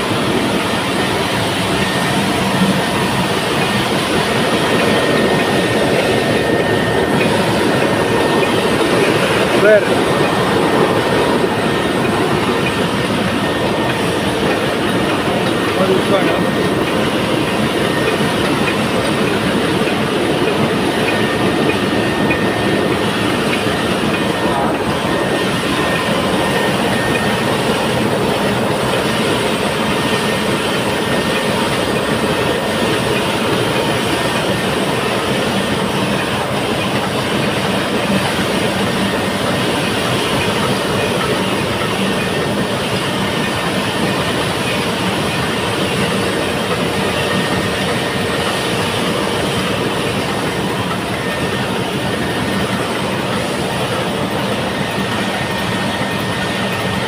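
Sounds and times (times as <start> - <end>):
marine diesel engine clattering: 0.0 - 57.0.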